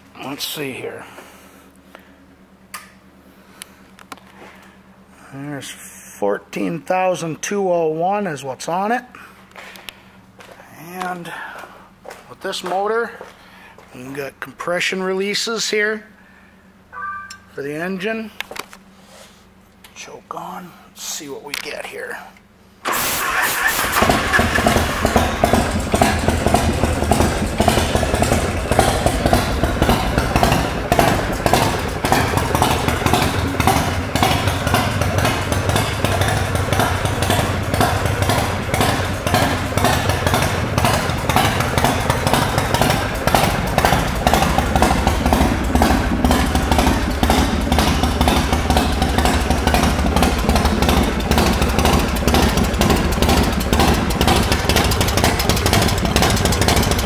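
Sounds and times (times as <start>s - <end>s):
motorcycle engine idling: 23.3s - 57.0s.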